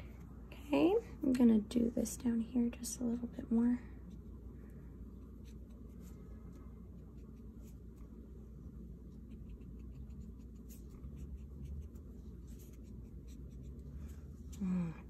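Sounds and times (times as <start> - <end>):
low steady hum: 0.0 - 15.0
paintbrush stroking paper: 5.3 - 8.2, 9.1 - 14.6.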